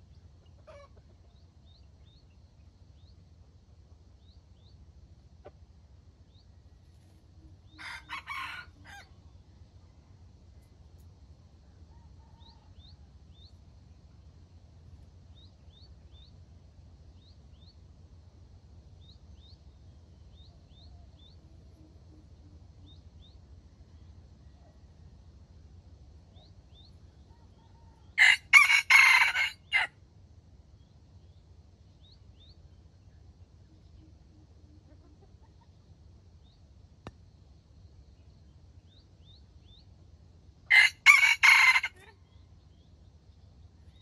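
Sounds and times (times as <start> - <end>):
small birds chirping: 0.0 - 9.5, 11.9 - 24.8, 26.0 - 29.9, 30.6 - 44.0
rooster crowing: 7.7 - 9.2, 11.9 - 13.1, 27.3 - 30.0, 40.7 - 42.3.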